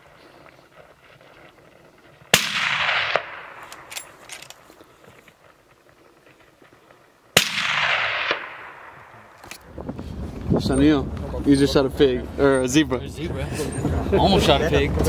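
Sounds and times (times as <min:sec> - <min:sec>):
rifle shots with echo: 0:02.3 - 0:04.4, 0:07.4 - 0:09.4.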